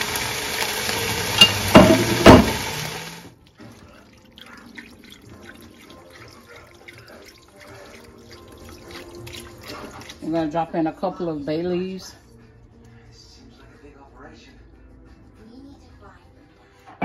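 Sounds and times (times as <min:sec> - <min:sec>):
food sizzling in a pot: 0:00.0 - 0:03.3
broth pouring into pot: 0:00.0 - 0:10.6.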